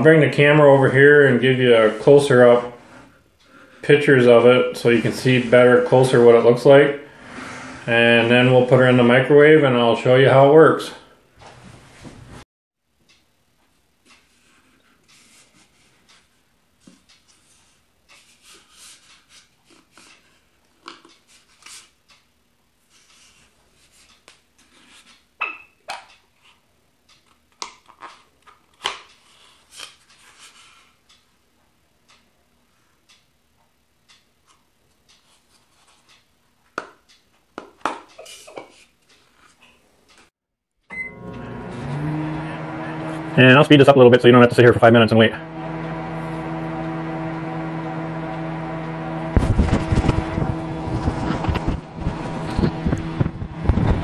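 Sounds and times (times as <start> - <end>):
microwave oven humming: 40.8 - 54.0.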